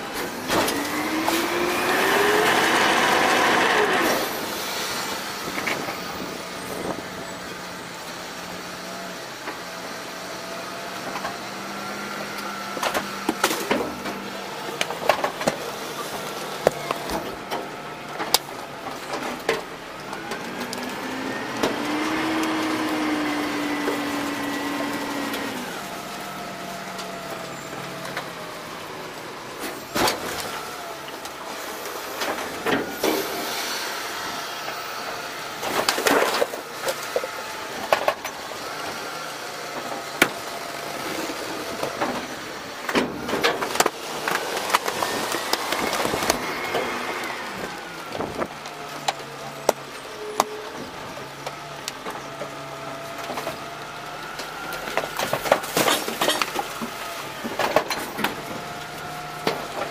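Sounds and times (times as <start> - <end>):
hydraulic packer whine: 0.0 - 59.9
trash dumped into metal hopper: 54.8 - 59.9.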